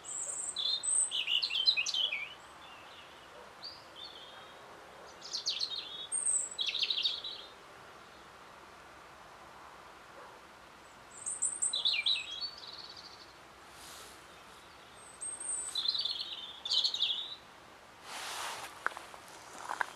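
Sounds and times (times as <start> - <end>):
robin singing: 0.0 - 8.3, 10.8 - 17.5
brief rush of noise: 18.0 - 18.8.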